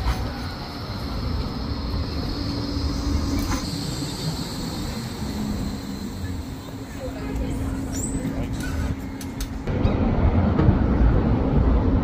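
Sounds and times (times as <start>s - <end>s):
tram wheels rumbling on rails: 0.0s - 12.0s
faint high whine: 0.1s - 9.3s.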